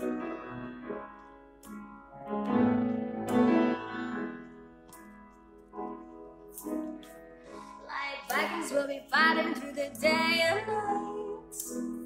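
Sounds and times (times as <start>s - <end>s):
piano chords: 0.0s - 12.0s
person singing: 7.8s - 12.0s.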